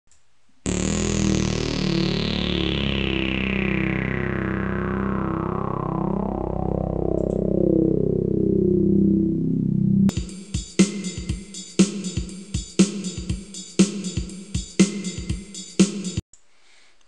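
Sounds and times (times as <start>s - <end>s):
sustained low notes: 0.7s - 10.1s.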